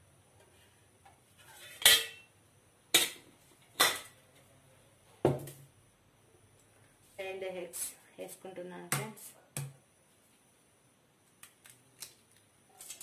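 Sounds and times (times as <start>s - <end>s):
metal pots clanking: 1.6s - 2.3s.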